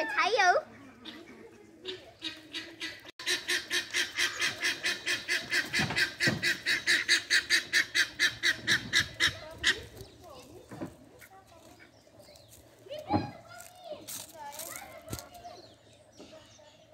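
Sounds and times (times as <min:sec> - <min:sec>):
guineafowl cackling: 0:00.2 - 0:10.1.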